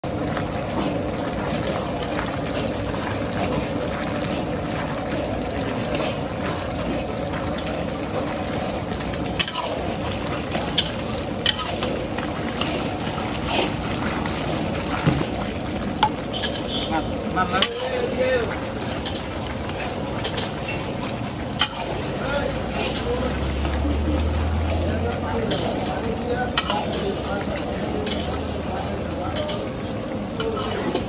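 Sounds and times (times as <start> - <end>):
paddle stirring thick curry: 0.1 - 31.0
paddle scraping metal pan: 16.3 - 16.8, 22.6 - 23.6.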